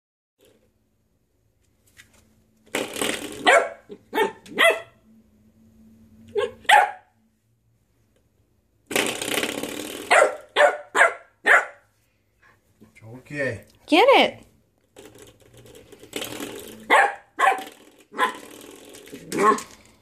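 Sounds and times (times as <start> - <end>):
puppy yapping: 3.4 - 5.0, 6.3 - 7.1, 10.1 - 11.8, 16.9 - 18.4, 19.3 - 19.7.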